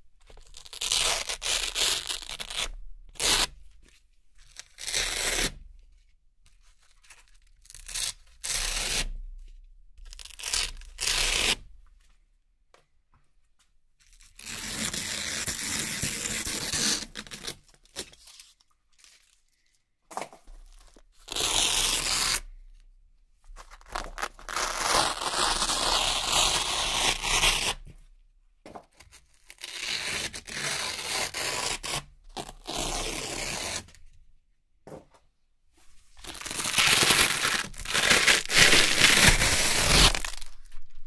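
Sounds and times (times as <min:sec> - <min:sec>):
velcro ripping: 0:00.5 - 0:03.5, 0:20.8 - 0:22.4, 0:23.6 - 0:27.8, 0:29.4 - 0:34.0, 0:36.2 - 0:41.0.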